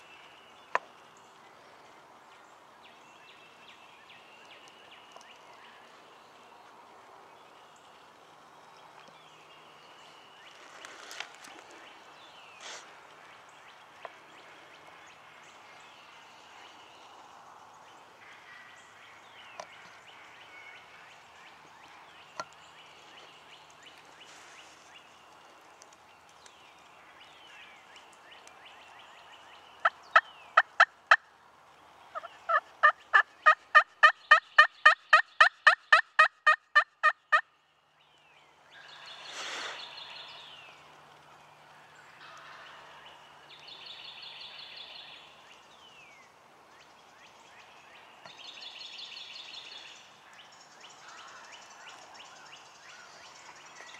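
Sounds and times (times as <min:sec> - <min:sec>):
turkey gobble: 0:32.1 - 0:37.4.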